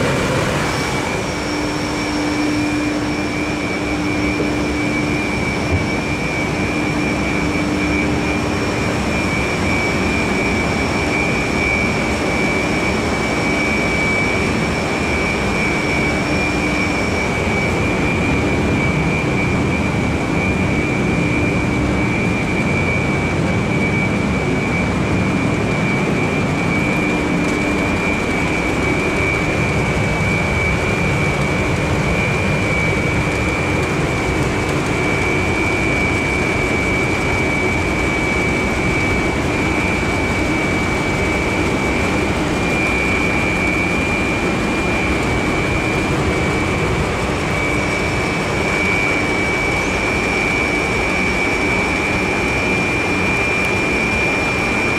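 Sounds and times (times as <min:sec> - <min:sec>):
machinery roaring: 0:00.0 - 0:21.0
high whine: 0:00.0 - 0:54.9.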